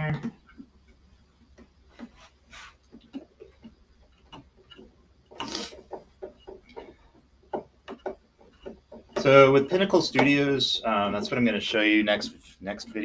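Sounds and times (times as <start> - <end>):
short scrape or rustle: 2.2 - 2.8
plastic parts knocking and clicking: 2.8 - 11.6.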